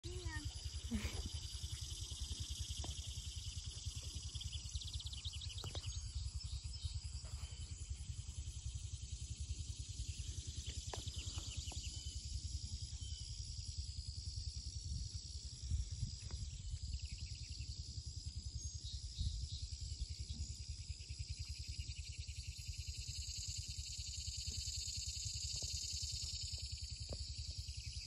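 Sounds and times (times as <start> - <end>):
insects trilling: 0.0 - 28.0
wind on microphone: 14.4 - 17.2.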